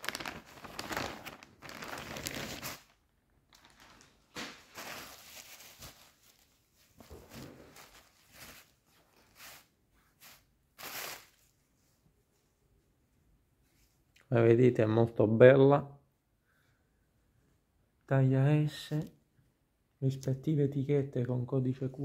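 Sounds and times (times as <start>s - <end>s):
plastic packaging crinkling: 0.0s - 11.5s.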